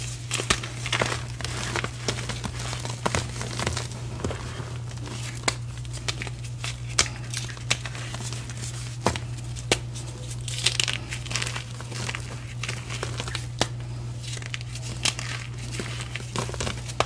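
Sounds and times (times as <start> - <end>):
chalk crumbling and crunching: 0.0 - 17.0
chalk pieces snapping: 0.3 - 17.0.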